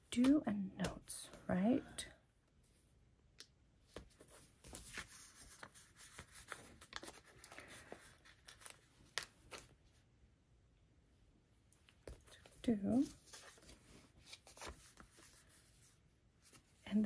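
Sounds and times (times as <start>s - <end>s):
paper rustling: 3.9s - 9.8s, 12.0s - 16.8s.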